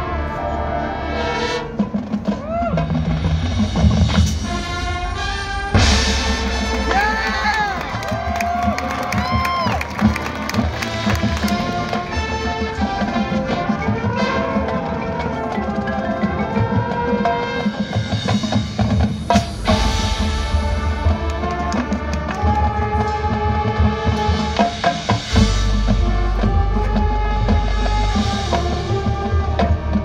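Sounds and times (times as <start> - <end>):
marching band playing: 0.0 - 30.0.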